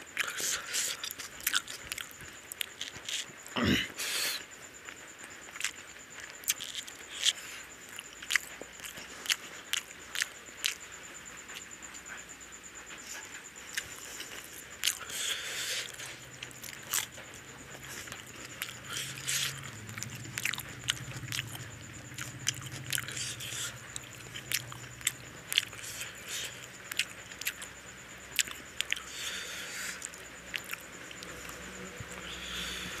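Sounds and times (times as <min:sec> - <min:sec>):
person chewing with mouth smacks: 0:00.2 - 0:03.3, 0:05.5 - 0:05.8, 0:06.4 - 0:10.8, 0:13.0 - 0:27.7, 0:28.4 - 0:31.6.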